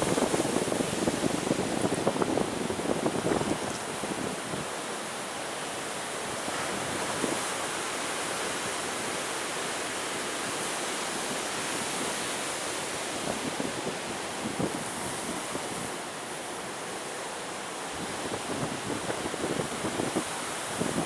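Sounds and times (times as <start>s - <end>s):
wind buffeting microphone: 0.0s - 4.7s, 18.0s - 21.0s.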